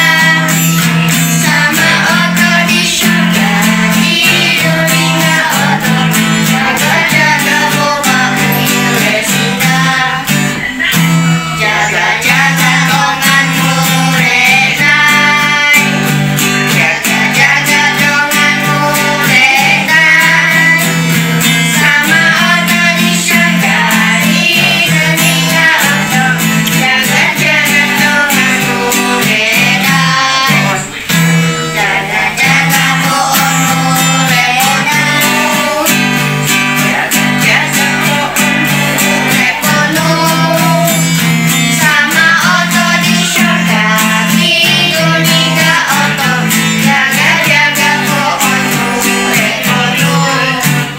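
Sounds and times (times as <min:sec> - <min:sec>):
children singing: 0:00.0 - 0:50.9
strummed acoustic guitar: 0:00.0 - 0:50.9.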